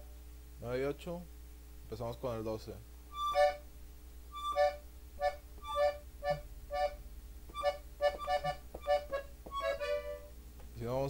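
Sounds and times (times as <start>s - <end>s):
accordion single notes: 3.1s - 3.7s, 4.3s - 10.4s.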